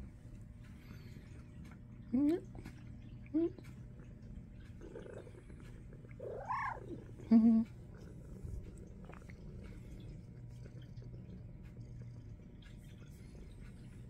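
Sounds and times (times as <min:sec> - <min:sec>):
cats purring: 0:00.0 - 0:14.0
cat meowing: 0:06.2 - 0:07.0.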